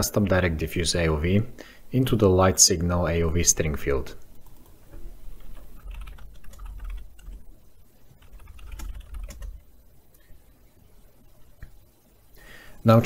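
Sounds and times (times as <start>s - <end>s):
keyboard typing: 4.3s - 10.5s.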